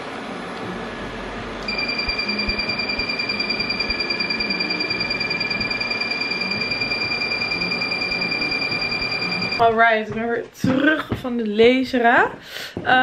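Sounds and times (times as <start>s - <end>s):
machine beeping rapidly: 1.7s - 9.6s.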